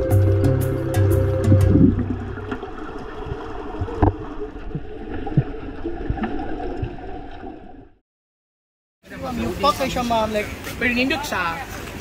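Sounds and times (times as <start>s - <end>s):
underwater rumble and sloshing: 1.2s - 8.0s.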